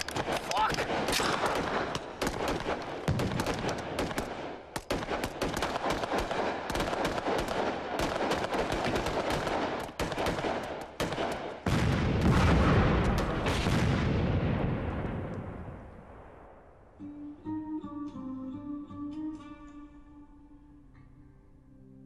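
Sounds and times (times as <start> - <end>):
rapid gunfire: 0.0 - 14.0
explosion: 11.7 - 16.6.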